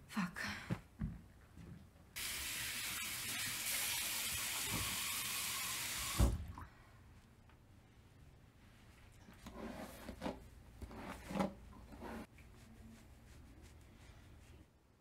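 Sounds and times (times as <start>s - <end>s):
water running from a tap: 2.2s - 6.4s.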